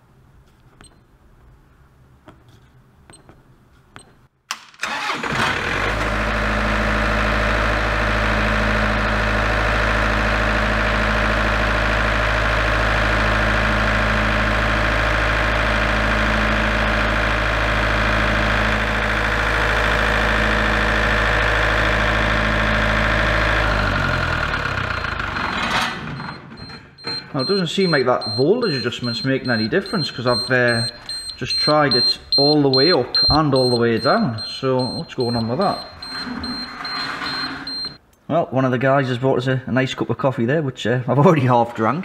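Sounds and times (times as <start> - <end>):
diesel generator starting and running: 4.5 - 38.1
generator winding down: 4.8 - 38.0.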